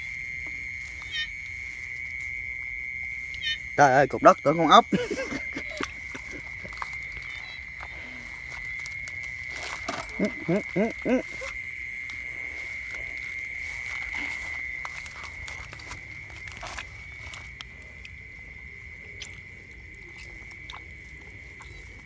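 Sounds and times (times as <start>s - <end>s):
frog calling: 0.0s - 22.0s
grass rustling: 0.0s - 22.0s
high insect trill: 0.0s - 22.0s.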